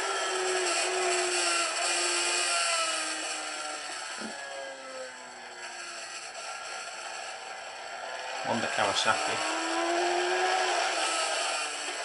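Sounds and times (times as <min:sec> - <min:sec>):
racing motorcycle engine revving: 0:00.0 - 0:12.0.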